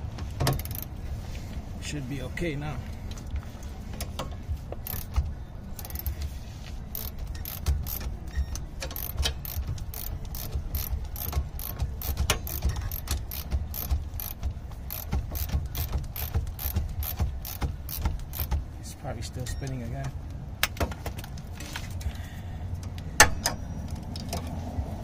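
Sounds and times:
ratchet clicking: 0.5s - 0.9s, 4.8s - 5.2s, 5.8s - 6.3s, 6.9s - 18.6s.

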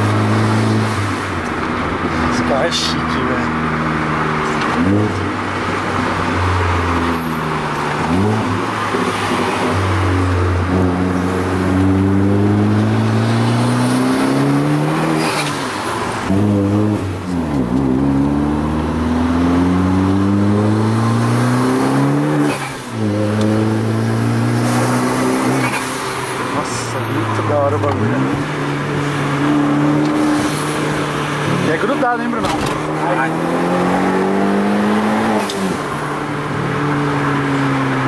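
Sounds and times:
car engine revving through gears: 0.0s - 38.0s.

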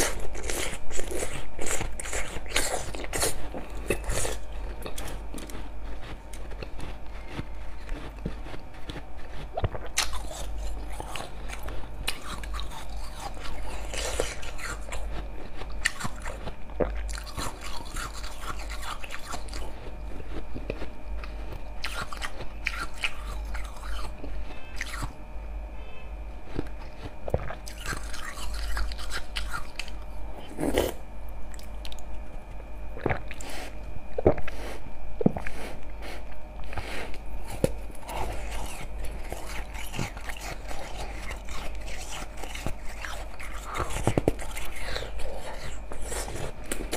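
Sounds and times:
ice crunching between teeth: 0.0s - 25.2s, 37.5s - 46.9s.

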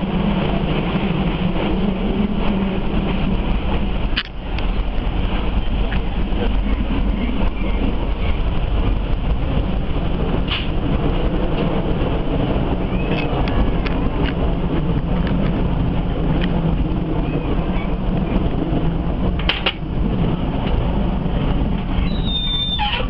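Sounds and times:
train wheels rumbling on rails: 0.0s - 23.0s
sharp clicks and squeaks: 13.0s - 14.4s, 22.0s - 23.0s.

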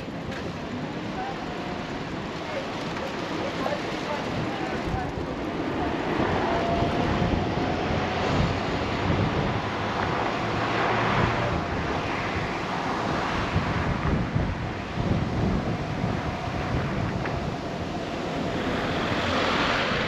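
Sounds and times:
road noise: 0.0s - 20.0s
wind buffeting microphone: 0.0s - 20.0s.

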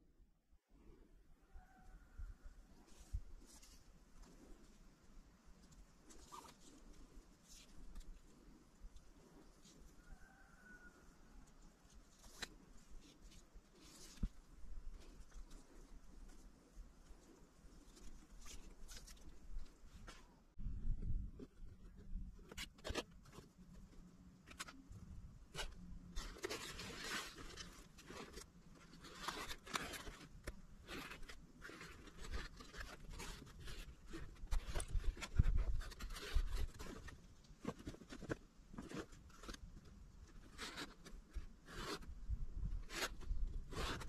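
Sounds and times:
cord scraping and rustling: 5.6s - 10.0s, 11.5s - 20.3s, 25.5s - 44.0s.

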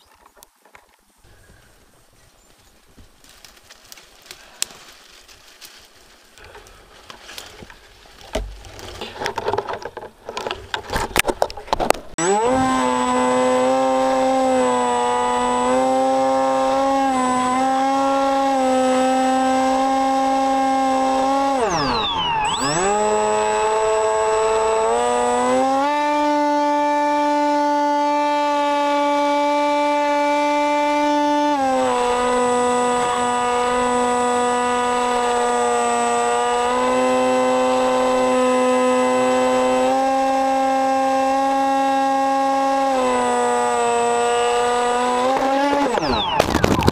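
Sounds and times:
twigs and branches crackling: 0.0s - 12.2s, 44.6s - 46.9s
model plane motor and propeller: 12.2s - 46.9s.

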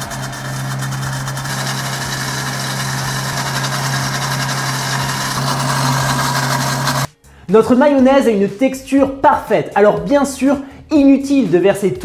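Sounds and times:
blender motor whirring: 0.0s - 7.1s.

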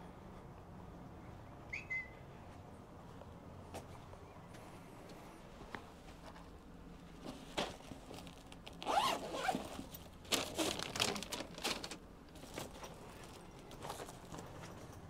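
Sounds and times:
zipper rasping: 8.8s - 9.9s.

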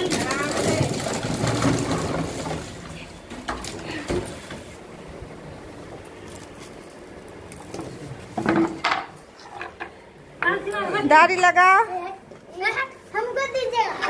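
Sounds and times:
dried maize cobs rattling: 0.0s - 4.1s.

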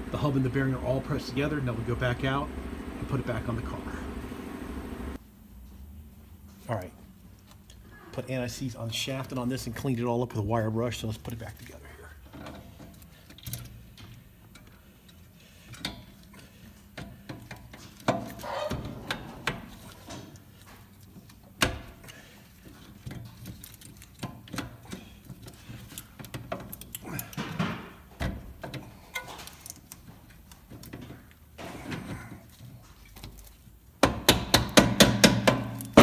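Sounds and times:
metallic clicks and scrapes: 12.3s - 27.5s
sharp metal knocks: 34.0s - 36.0s.

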